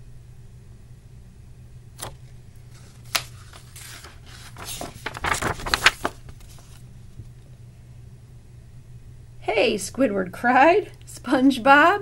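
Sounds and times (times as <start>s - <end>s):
book page turning: 2.0s - 6.9s.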